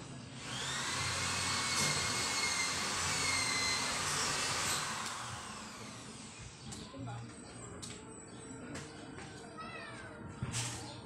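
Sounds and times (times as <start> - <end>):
motor whining: 0.4 - 6.6.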